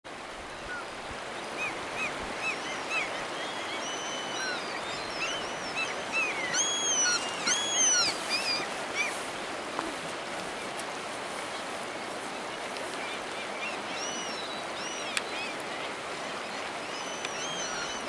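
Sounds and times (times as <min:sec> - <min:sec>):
river rushing: 0:00.1 - 0:18.0
gulls calling: 0:01.5 - 0:10.0.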